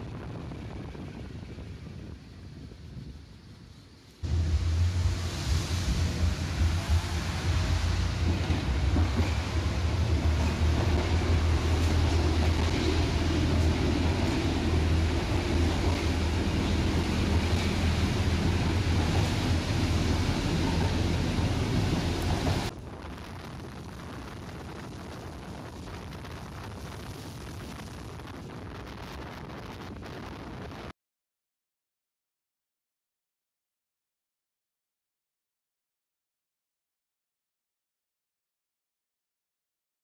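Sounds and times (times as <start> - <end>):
tram rumbling on track: 0.0 - 30.6.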